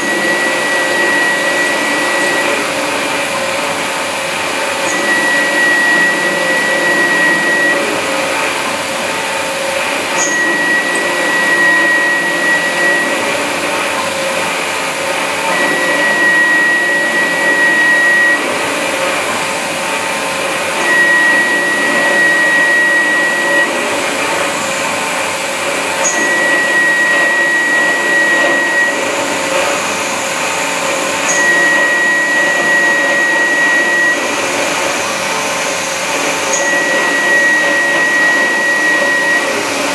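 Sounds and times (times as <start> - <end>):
high whine of milling cutter: 0.0 - 39.9.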